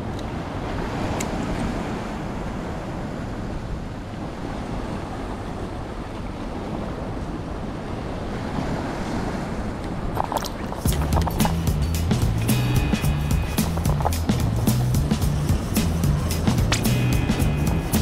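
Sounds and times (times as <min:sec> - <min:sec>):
wind buffeting microphone: 0:00.0 - 0:18.0
surf breaking on rocks: 0:08.6 - 0:18.0.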